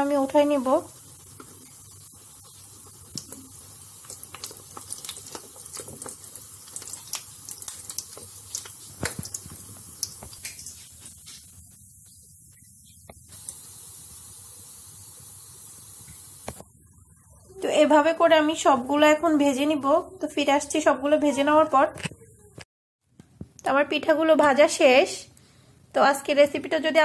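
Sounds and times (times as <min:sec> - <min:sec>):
oil deep-frying with crackling pops: 0:00.0 - 0:16.7.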